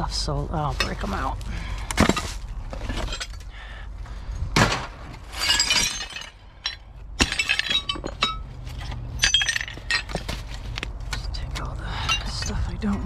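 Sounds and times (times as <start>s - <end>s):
glass clinking and shattering: 2.0s - 3.5s, 4.6s - 10.5s, 11.9s - 13.0s.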